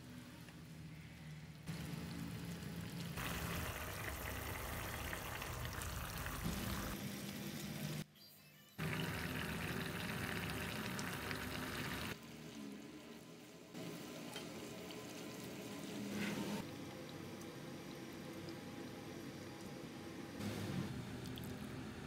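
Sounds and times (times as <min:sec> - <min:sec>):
soup simmering and bubbling: 0:01.7 - 0:07.0, 0:08.8 - 0:12.2.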